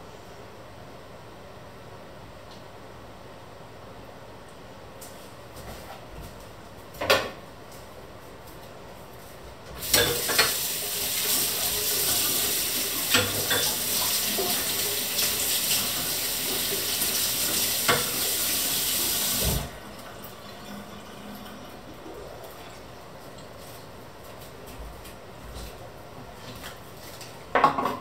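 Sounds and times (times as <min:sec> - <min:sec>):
tap running into metal sink: 0:09.8 - 0:18.6
utensils clinking against sink: 0:09.8 - 0:18.6.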